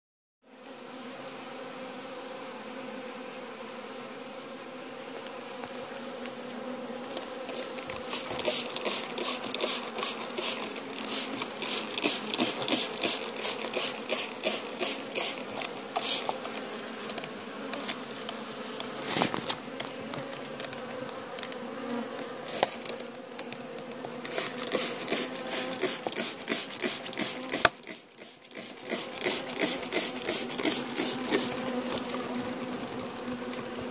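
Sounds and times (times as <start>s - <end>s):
bees humming in hive: 0.5s - 33.9s
short hissing ticks: 7.5s - 17.2s, 22.2s - 31.6s.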